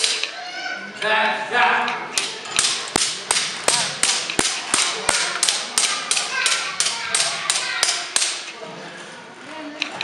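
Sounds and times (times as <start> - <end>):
wooden gearing clacking: 2.2 - 8.5.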